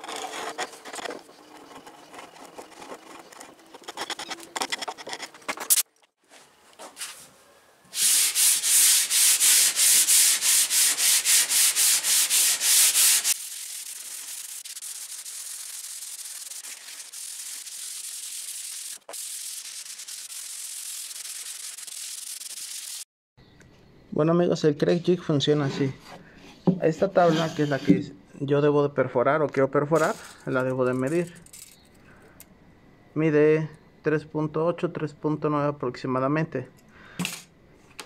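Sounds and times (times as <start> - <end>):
chisel scraping wood finish: 0.0 - 5.5, 8.0 - 13.4, 25.6 - 28.0
hand sanding strokes: 7.9 - 23.0
rubbing hiss: 7.9 - 23.0.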